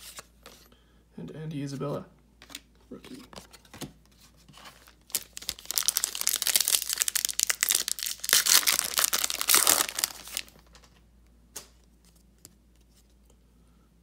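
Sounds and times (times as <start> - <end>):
foil wrapper crinkling and tearing: 4.8 - 10.9.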